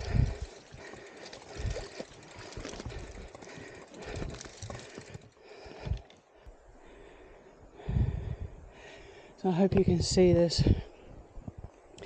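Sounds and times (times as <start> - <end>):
steady rustle: 0.0 - 6.4
heavy breathing: 0.0 - 9.4.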